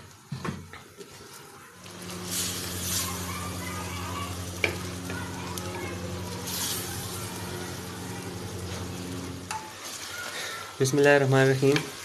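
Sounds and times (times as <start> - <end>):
low buzzing hum: 1.9 - 9.7
wooden spoon scraping a pot: 6.1 - 12.0.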